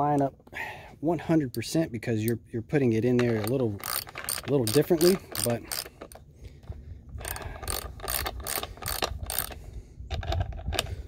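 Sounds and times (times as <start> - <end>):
socket ratchet clicking: 3.2 - 6.2, 7.2 - 10.9.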